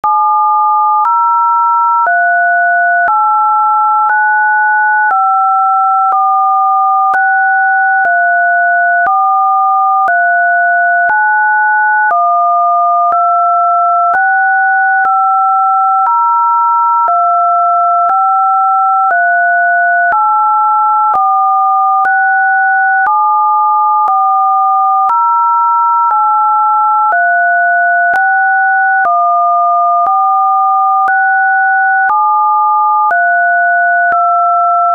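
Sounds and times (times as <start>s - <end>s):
two steady pure tones: 4.0s - 16.2s, 17.0s - 25.3s, 27.0s - 34.9s.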